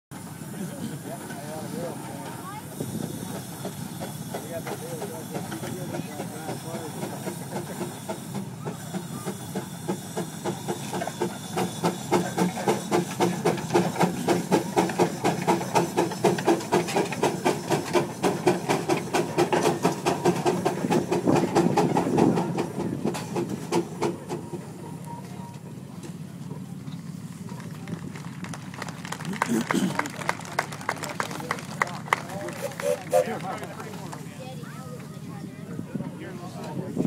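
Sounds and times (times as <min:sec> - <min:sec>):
steam engine exhaust chuffing: 0:00.1 - 0:35.8
steam hissing: 0:00.2 - 0:25.0, 0:32.4 - 0:34.3.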